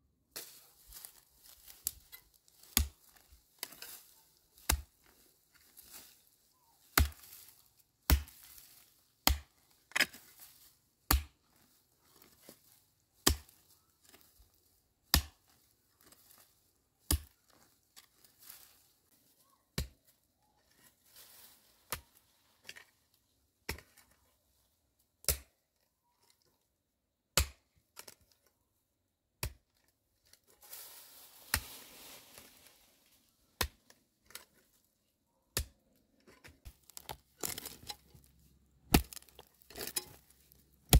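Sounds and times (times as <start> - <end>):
rustling of dry grass and soil: 0.2 - 26.7, 29.5 - 40.9
mattock striking dry earth: 0.4 - 11.6, 12.2 - 14.3, 15.0 - 16.4, 30.6 - 32.6, 36.6 - 40.9.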